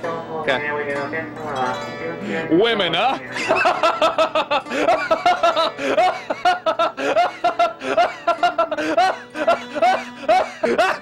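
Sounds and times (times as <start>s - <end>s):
man laughing loudly: 3.3s - 11.0s.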